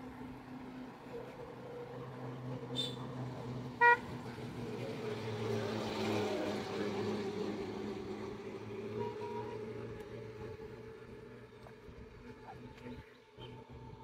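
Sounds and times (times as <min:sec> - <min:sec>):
vehicle passing on road: 0:00.0 - 0:14.0
car horn beep: 0:03.8 - 0:04.1, 0:08.9 - 0:09.7.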